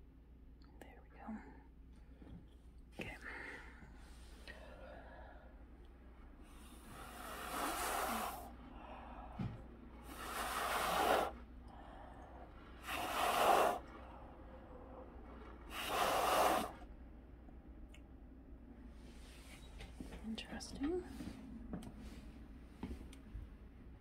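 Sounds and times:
person blowing hard: 0:06.8 - 0:08.6, 0:10.0 - 0:11.4, 0:12.8 - 0:14.0, 0:15.6 - 0:16.8.

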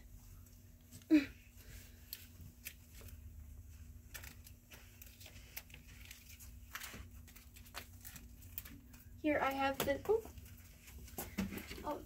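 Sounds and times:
plastic packages crinkling and clicking: 0:04.0 - 0:12.0.

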